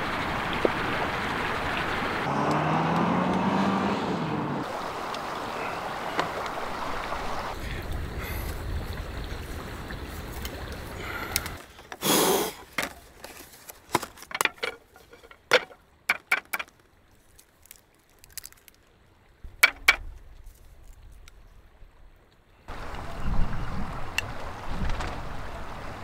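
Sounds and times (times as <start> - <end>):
wind rumble on microphone: 4.7 - 11.6, 22.7 - 26.0.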